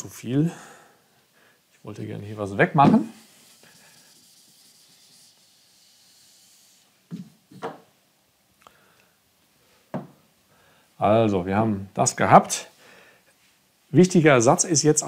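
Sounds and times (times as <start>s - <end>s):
eraser rubbing on board: 2.9s - 7.1s.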